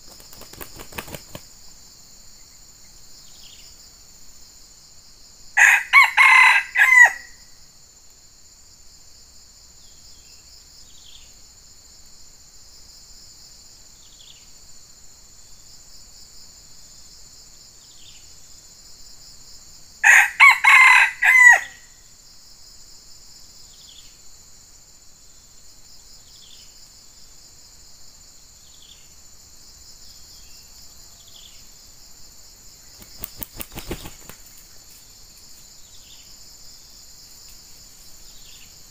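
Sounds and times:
wings fluttering: 0.0s - 1.6s, 32.9s - 35.6s
insects droning: 0.0s - 38.9s
rooster crowing: 5.6s - 7.4s, 20.0s - 22.0s.

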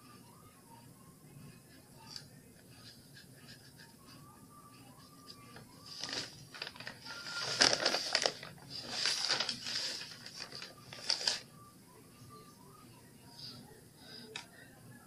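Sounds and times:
newspaper rustling and crinkling: 5.6s - 11.4s.

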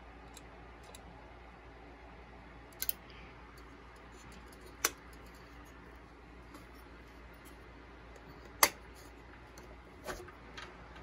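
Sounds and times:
light clicks of computer parts: 0.2s - 1.1s, 2.7s - 5.7s.

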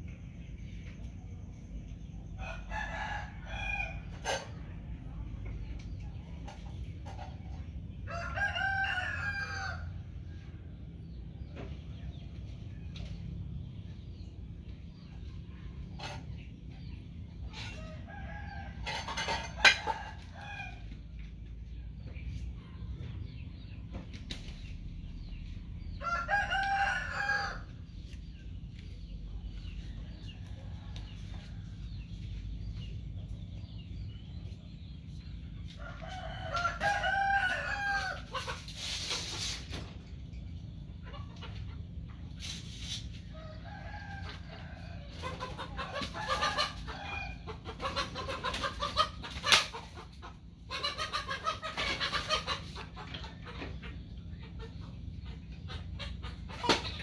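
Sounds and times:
steady low hum: 0.0s - 8.1s, 9.8s - 57.0s
rooster crowing: 8.1s - 9.9s, 26.0s - 27.7s, 35.9s - 38.2s
chicken clucking: 25.2s - 57.0s.

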